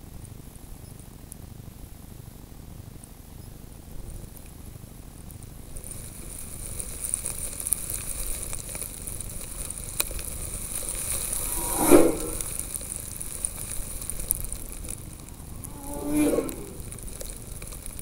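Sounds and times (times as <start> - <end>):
steady hiss: 5.6 - 18.0
snowmobile passing by: 11.1 - 12.7, 15.1 - 17.5.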